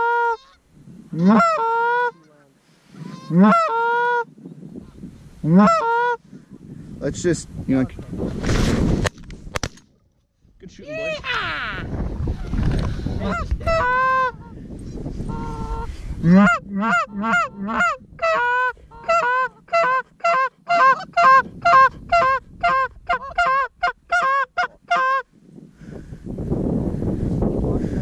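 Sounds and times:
goose honking: 1.2s - 2.4s.

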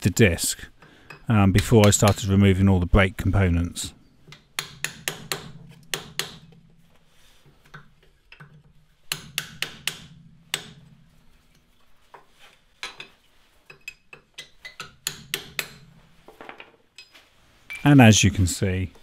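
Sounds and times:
chisel tapping on metal: 0.8s - 2.3s, 4.2s - 6.6s, 7.6s - 11.0s, 12.8s - 15.9s, 17.0s - 17.2s.

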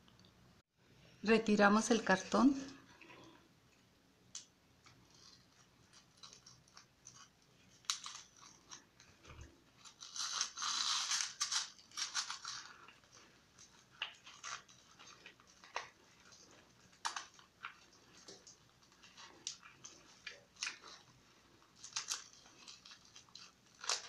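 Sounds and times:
cardboard tearing: 9.8s - 12.7s.

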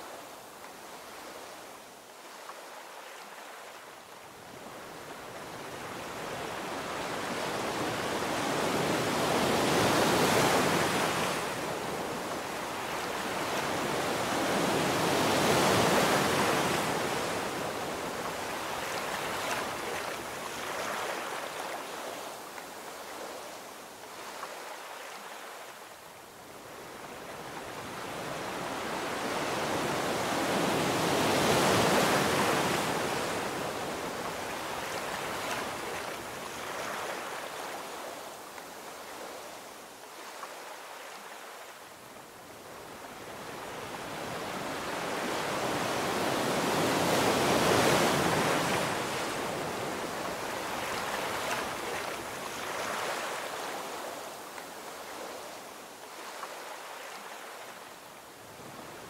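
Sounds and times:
ocean waves breaking: 43.0s - 55.5s.

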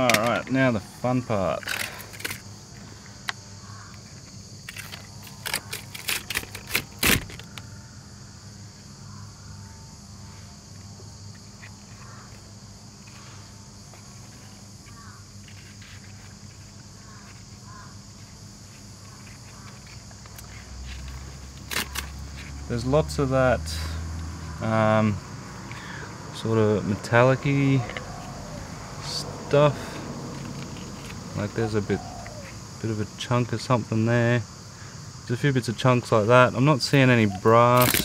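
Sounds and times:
high insect hiss: 0.0s - 38.0s
paper filter crackling and snapping: 37.8s - 38.0s.

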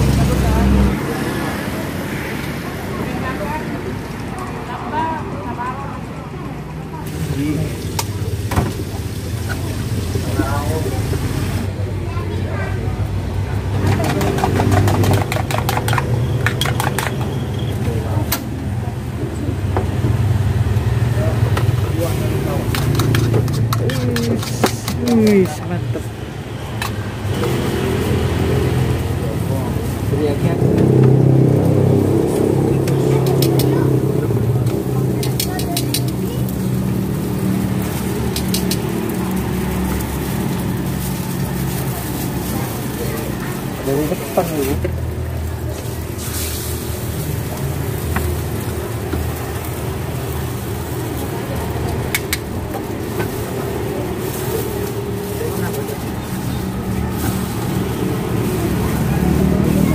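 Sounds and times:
low rumble of road traffic: 0.0s - 59.9s
kitchen utensils clicking and tapping: 13.8s - 17.6s, 21.5s - 25.7s, 34.7s - 40.6s, 51.6s - 54.9s.

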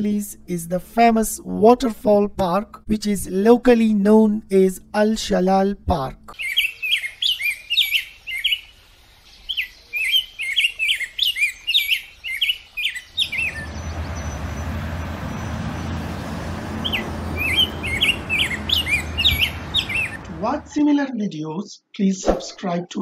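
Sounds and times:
small birds chirping: 6.4s - 20.8s.

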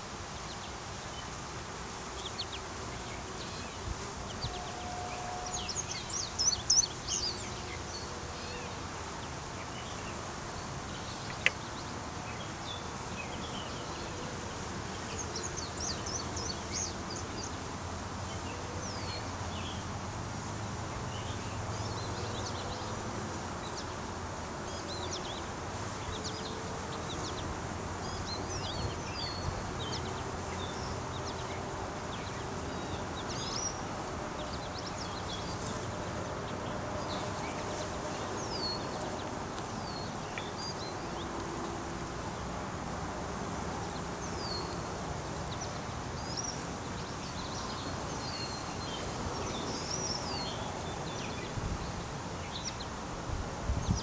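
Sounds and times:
bee swarm humming: 22.0s - 45.5s.

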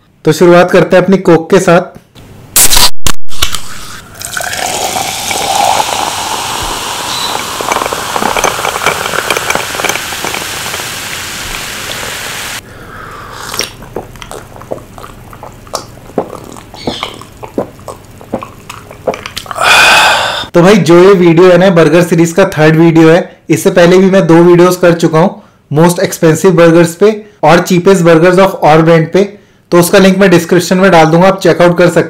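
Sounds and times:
fizz clicks and crackle: 3.3s - 12.6s
fizzy soda pouring into glass: 3.4s - 12.6s.

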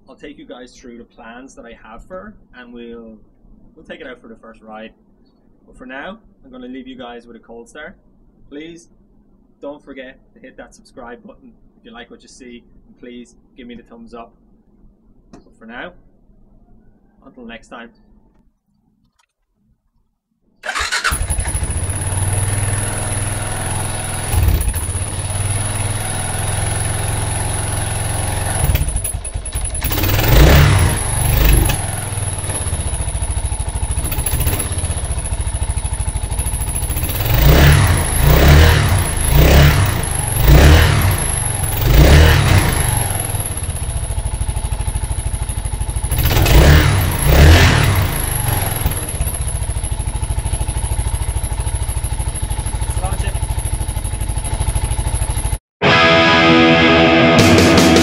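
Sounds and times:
motorcycle engine idling: 20.6s - 55.6s
motorcycle engine revving: 20.6s - 55.6s.

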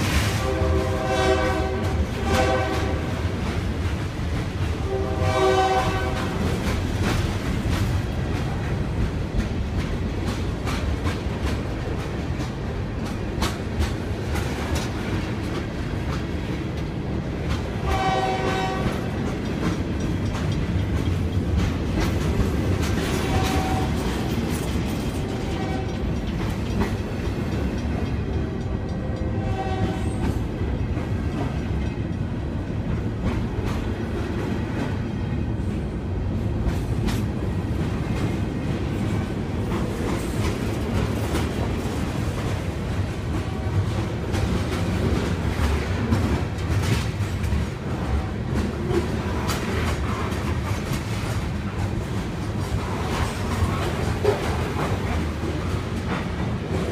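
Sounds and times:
wheel clatter over rail joints: 18.7s - 29.4s.

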